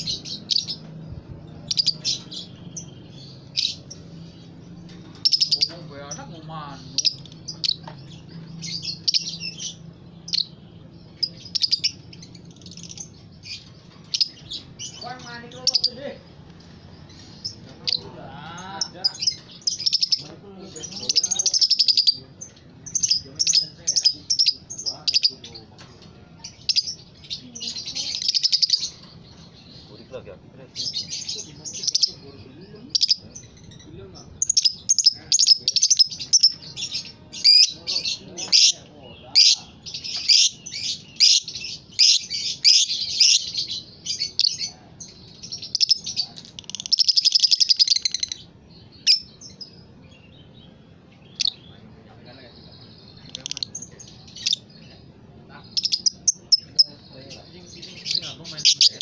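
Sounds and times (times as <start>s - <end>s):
lovebird twittering: 0.0s - 25.6s, 26.4s - 30.0s, 30.7s - 51.8s, 52.6s - 55.0s, 55.6s - 59.0s.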